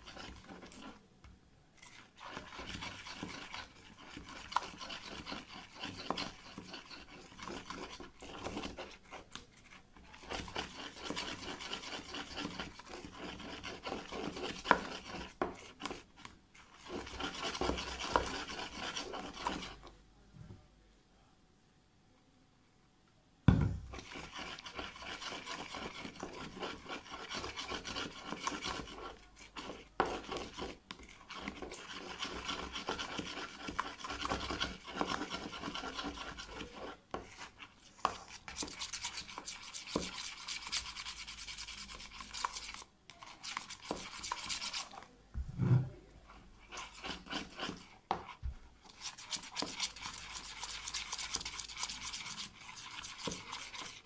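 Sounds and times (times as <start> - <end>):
spoon scraping slime in tub: 0.0 - 1.1, 1.8 - 19.9, 23.8 - 54.0.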